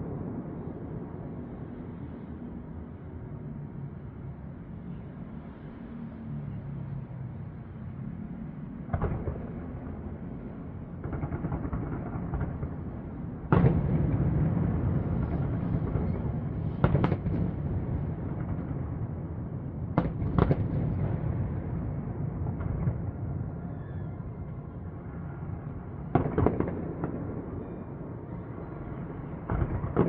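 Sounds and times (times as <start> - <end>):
fireworks bangs: 13.4 - 19.1, 19.9 - 21.6, 26.0 - 27.9, 28.7 - 30.0.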